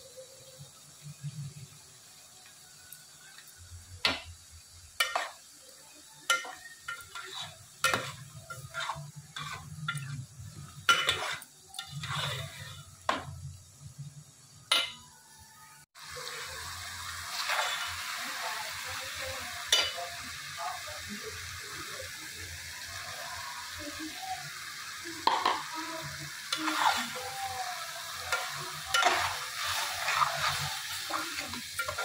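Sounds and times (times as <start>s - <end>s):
metal spatula scraping a pot: 5.0s - 5.5s, 6.3s - 13.4s, 17.3s - 18.1s, 26.4s - 27.4s, 28.2s - 32.0s.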